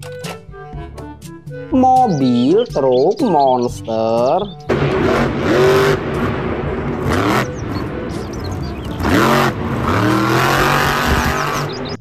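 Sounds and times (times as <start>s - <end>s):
monster truck engine revving: 4.7s - 12.0s.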